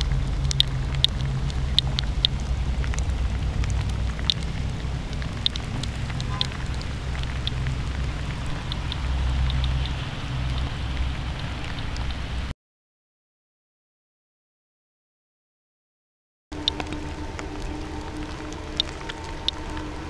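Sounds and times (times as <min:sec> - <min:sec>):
low rumble: 0:00.0 - 0:12.5, 0:16.5 - 0:20.0
steady rain falling: 0:00.0 - 0:12.5, 0:16.5 - 0:20.0.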